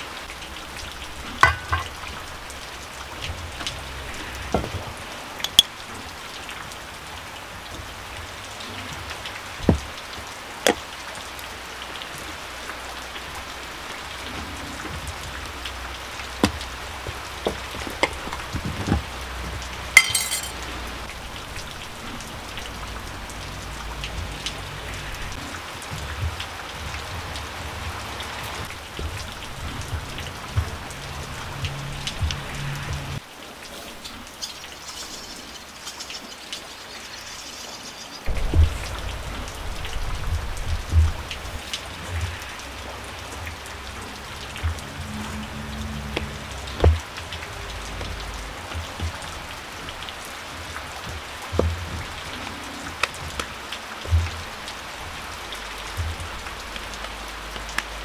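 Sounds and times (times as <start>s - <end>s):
rain patter: 0.0s - 58.0s
spoons clinking against bowl: 20.0s - 20.6s.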